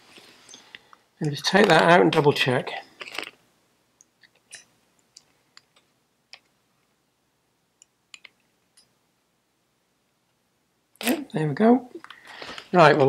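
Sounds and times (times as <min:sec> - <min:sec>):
small metal parts clicking: 0:04.2 - 0:05.8.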